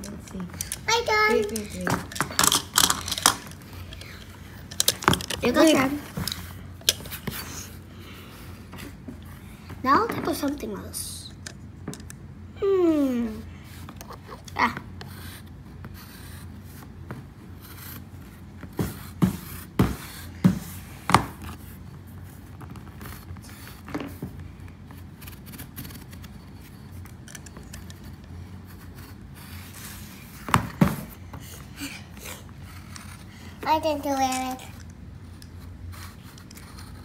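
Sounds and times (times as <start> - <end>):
plastic toys knocking and scraping: 0.0 - 7.7, 8.7 - 12.2, 26.9 - 31.5.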